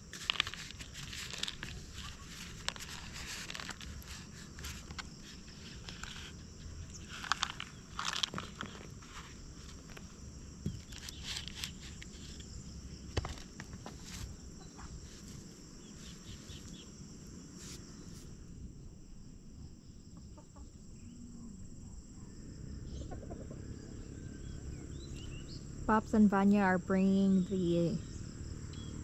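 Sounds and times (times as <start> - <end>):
rustling: 0.0 - 16.9
chickens clucking: 23.0 - 23.6.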